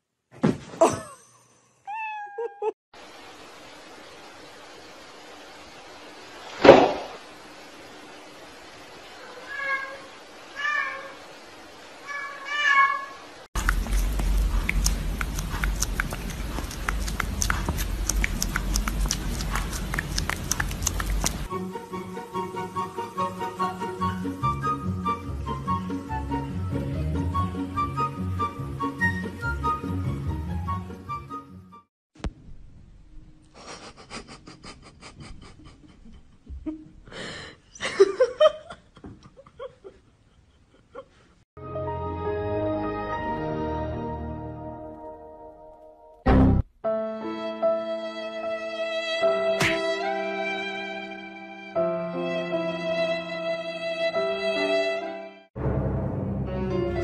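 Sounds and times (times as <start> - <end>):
person laughing: 0.8 - 1.6, 2.2 - 2.8, 33.6 - 41.3, 49.6 - 50.0
cat meowing: 1.9 - 2.7, 9.2 - 11.2, 12.0 - 13.2
rapid panting breaths: 13.6 - 21.5
sharp clicks: 13.6 - 21.5
steady low rumble: 13.6 - 21.5.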